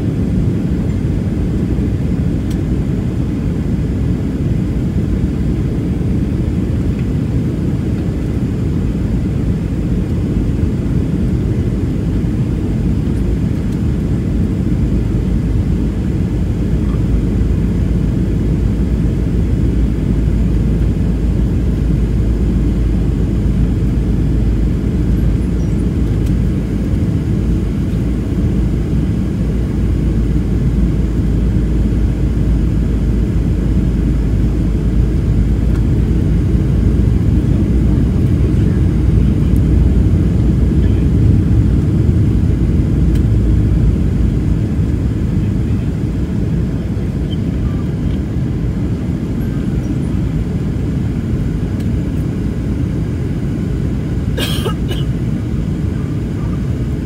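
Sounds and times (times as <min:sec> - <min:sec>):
airplane cabin roar: 0:00.0 - 0:57.0.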